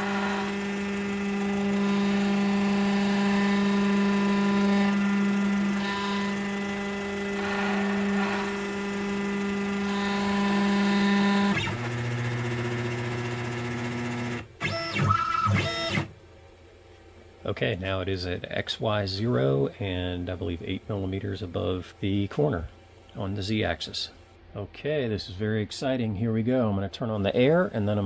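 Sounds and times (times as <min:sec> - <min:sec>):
stepper motors whining: 0:00.0 - 0:16.1.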